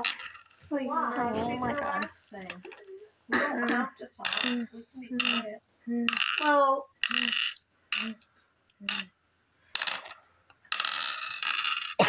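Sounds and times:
glass gems clicking on wood: 0:00.0 - 0:03.1, 0:04.3 - 0:09.1, 0:09.8 - 0:12.0
child voice sounds: 0:00.7 - 0:07.3.

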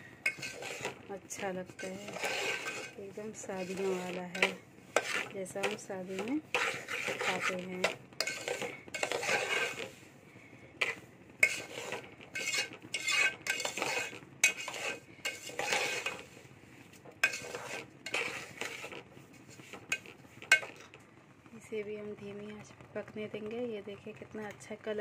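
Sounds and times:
metal spoon scraping a pan: 0:00.0 - 0:10.1, 0:10.8 - 0:16.5, 0:17.2 - 0:21.0.

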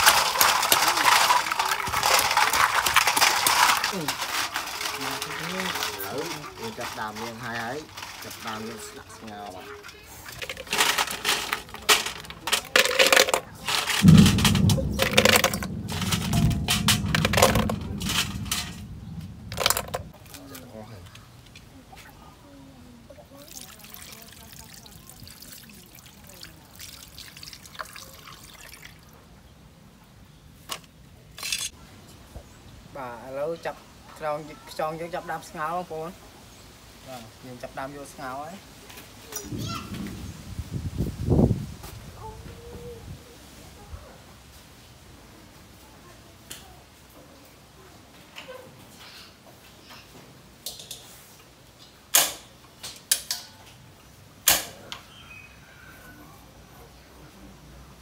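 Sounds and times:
water trickling onto shells: 0:00.0 - 0:22.2, 0:23.0 - 0:29.4.

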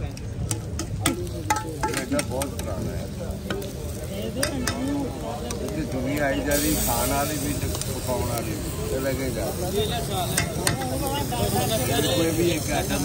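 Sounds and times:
flatbread sizzling on a griddle: 0:00.0 - 0:13.0
metal utensils clinking: 0:00.4 - 0:02.8.

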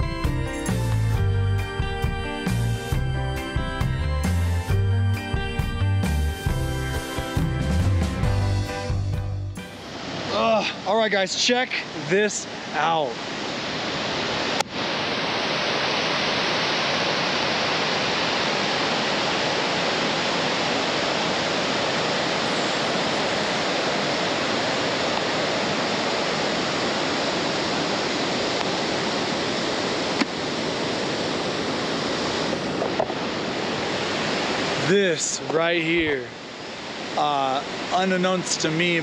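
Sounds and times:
rushing water roar: 0:09.6 - 0:39.0.

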